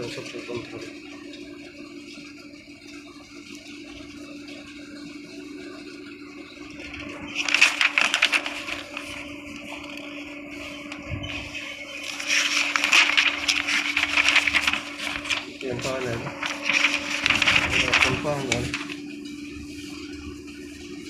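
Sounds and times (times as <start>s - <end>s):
steady low hum: 0.0s - 21.0s
paper pages rustling: 6.8s - 19.3s.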